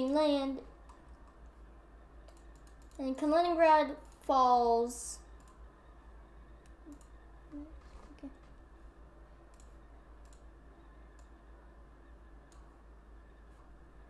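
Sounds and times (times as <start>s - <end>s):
faint low hum: 0.0s - 14.0s
computer mouse clicks: 2.2s - 3.2s, 5.2s - 5.7s, 6.6s - 7.2s, 9.4s - 11.4s, 12.4s - 12.8s.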